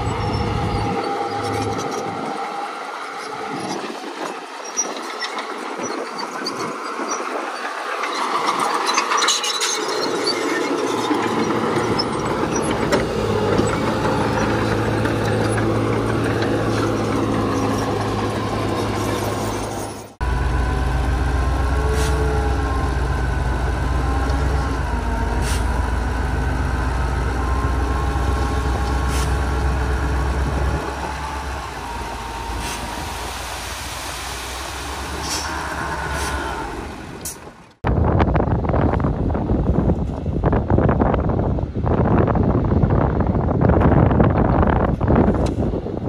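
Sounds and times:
metallic grinding and squealing: 0.0 - 20.2
diesel machinery engine drone: 0.0 - 46.0.

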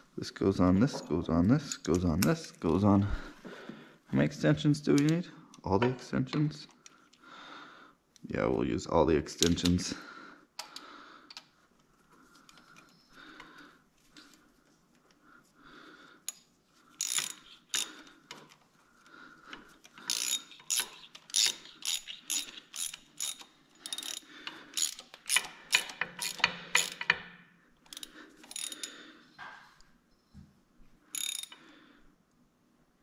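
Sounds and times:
ratchet wrench clicking: 17.0 - 18.5, 19.8 - 27.2, 27.8 - 28.9, 31.1 - 31.6.

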